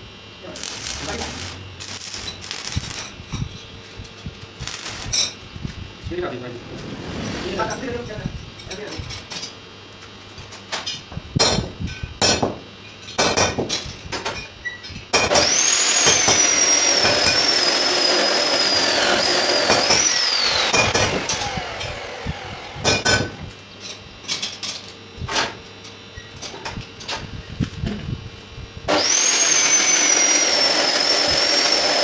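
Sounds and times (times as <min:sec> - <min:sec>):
power tool motor whining: 0:00.5 - 0:03.2, 0:04.6 - 0:05.2, 0:15.3 - 0:23.0, 0:28.9 - 0:32.0.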